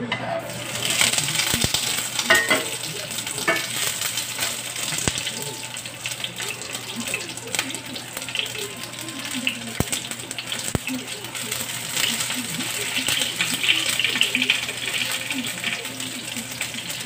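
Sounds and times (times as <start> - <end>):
onion rings sizzling in oil: 0.2 - 17.0
metal tongs clicking on pan: 0.9 - 5.4, 9.6 - 15.9.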